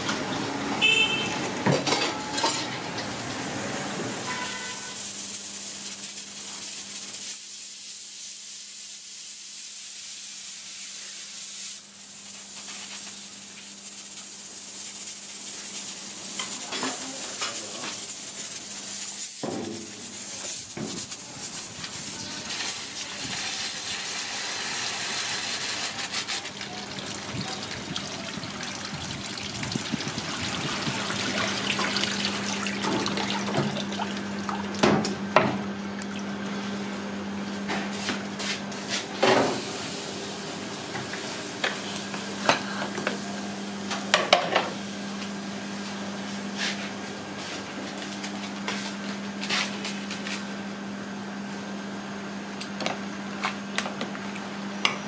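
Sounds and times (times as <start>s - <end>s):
tap water pouring and splashing: 25.8s - 36.6s.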